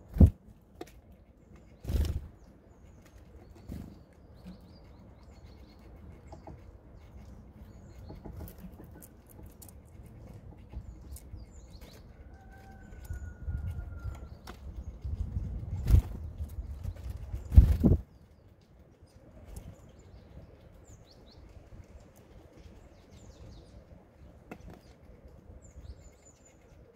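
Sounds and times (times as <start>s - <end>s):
small birds chirping: 0.0s - 26.9s.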